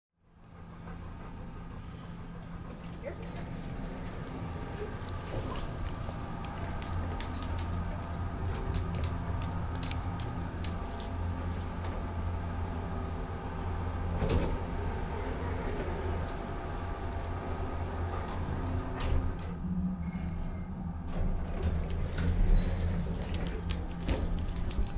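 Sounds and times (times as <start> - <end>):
steady low hum: 0.2 - 24.9
elevator doors sliding shut: 13.8 - 24.9.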